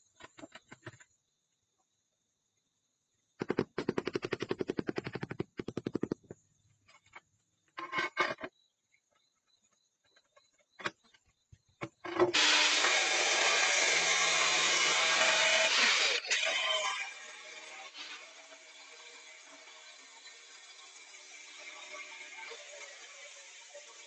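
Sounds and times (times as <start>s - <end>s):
rapid taps on a ceramic tile: 3.4s - 6.4s
angle grinder cutting tile: 12.2s - 24.0s.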